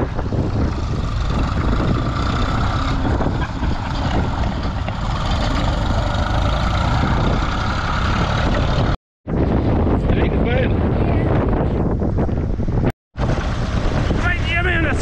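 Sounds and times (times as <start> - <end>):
tractor engine running: 0.0 - 9.0
wind rumble on microphone: 0.0 - 15.0.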